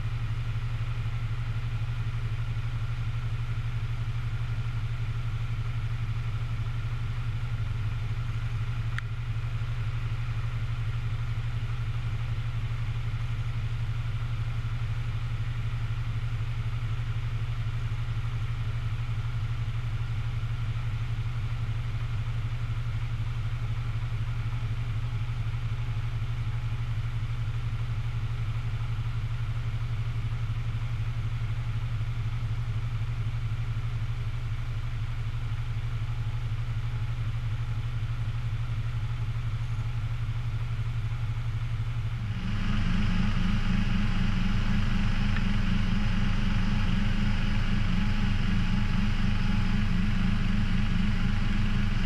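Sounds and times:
diesel engine idling: 0:33.4 - 0:52.0.

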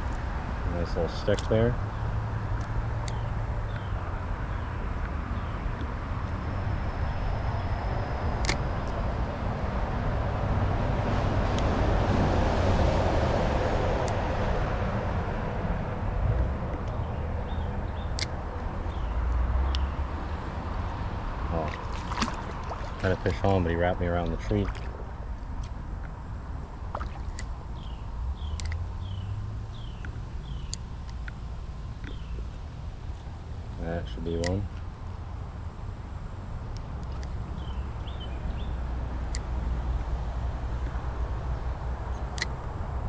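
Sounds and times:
vehicle passing: 0:00.0 - 0:30.7
highway traffic noise: 0:00.0 - 0:43.0
bird chirping: 0:03.0 - 0:05.8, 0:16.7 - 0:20.1, 0:27.4 - 0:31.4, 0:32.0 - 0:32.6, 0:37.0 - 0:38.8
sharp clicks: 0:27.2 - 0:28.8, 0:34.3 - 0:34.8.

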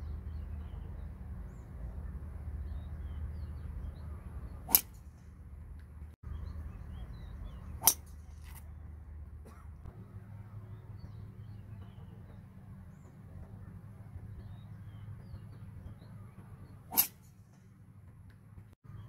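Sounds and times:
low outdoor rumble: 0:00.0 - 0:19.0
golf club striking ball: 0:04.7 - 0:05.2, 0:07.8 - 0:08.6, 0:16.9 - 0:17.3.

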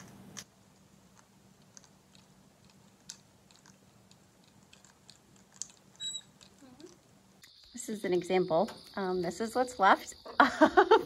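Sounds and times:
low steady hum: 0:00.0 - 0:11.0
parrot beak clicking and nibbling: 0:01.1 - 0:07.0.

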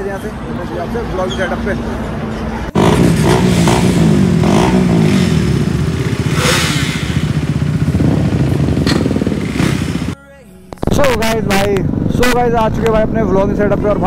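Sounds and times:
motorcycle engines revving: 0:01.1 - 0:10.2.

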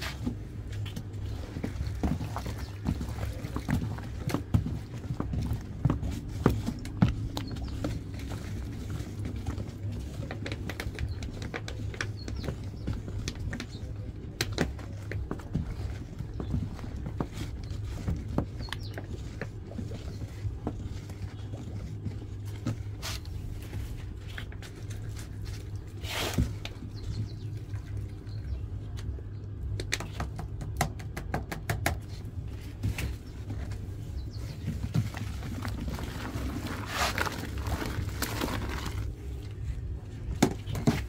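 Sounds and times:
stick stirring thick liquid: 0:00.0 - 0:29.8, 0:32.2 - 0:41.0
steady low rumble: 0:32.0 - 0:41.0.

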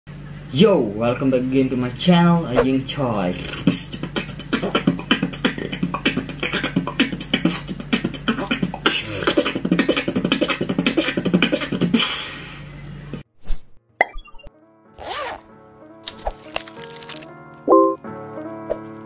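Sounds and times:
steady low hum: 0:00.1 - 0:13.2
beatboxing: 0:03.3 - 0:12.4.

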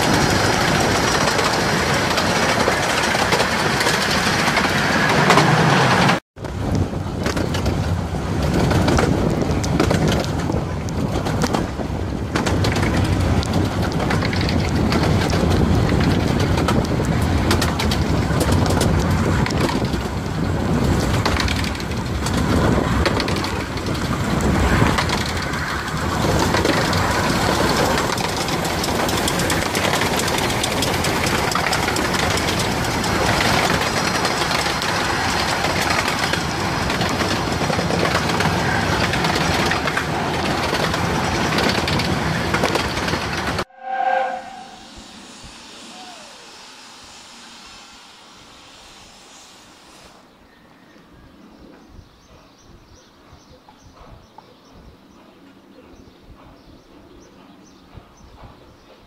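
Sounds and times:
wind rushing: 0:00.0 - 0:51.3
steam locomotive passing: 0:00.0 - 0:53.5
train wheels on rails: 0:00.0 - 0:59.0.

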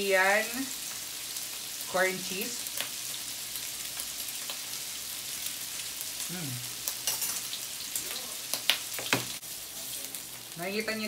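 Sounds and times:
meat sizzling on a grill plate: 0:00.0 - 0:11.0
person humming: 0:06.3 - 0:06.7.

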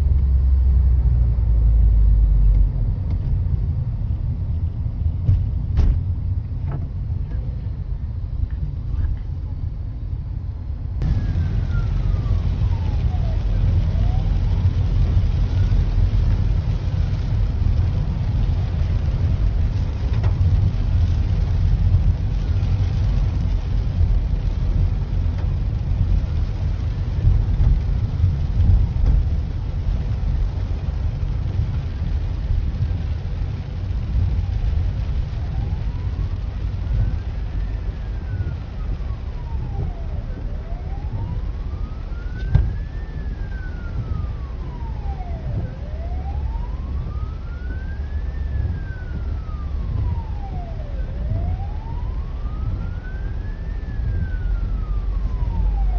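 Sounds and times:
car rumble: 0:00.0 - 0:55.9
rain: 0:00.0 - 0:55.9
faint ambulance siren wailing: 0:11.0 - 0:30.7, 0:31.4 - 0:55.9.

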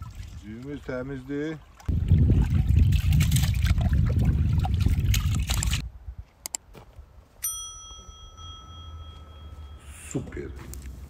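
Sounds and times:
bright bell ding: 0:07.4 - 0:10.6.

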